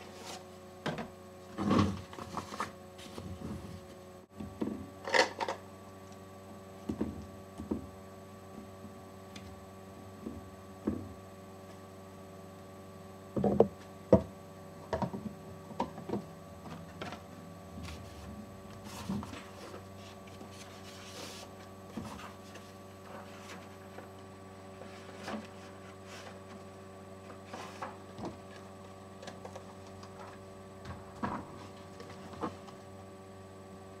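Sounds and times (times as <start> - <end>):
electrical hum: 0.0 - 34.0.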